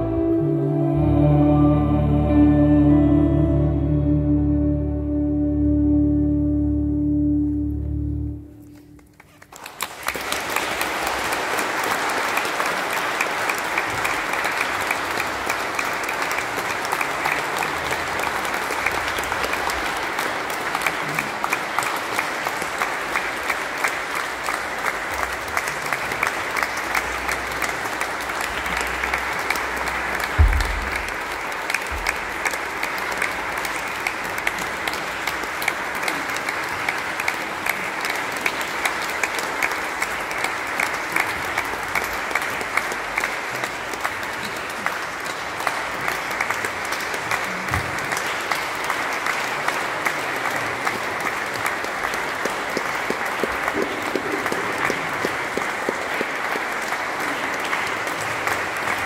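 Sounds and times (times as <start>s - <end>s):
audience applause: 8.6s - 59.0s
low thump: 30.4s - 31.2s.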